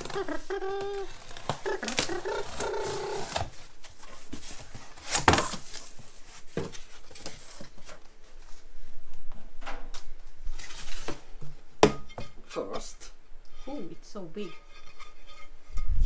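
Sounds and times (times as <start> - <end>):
cardboard flaps pulled apart: 0.0 - 3.7, 5.0 - 5.9.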